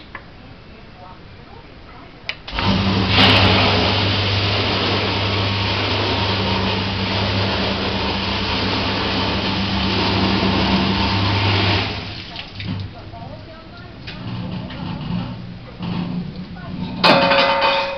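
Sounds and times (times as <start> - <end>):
dishwasher pump hum: 2.3 - 17.9
water spraying inside dishwasher: 2.4 - 17.9.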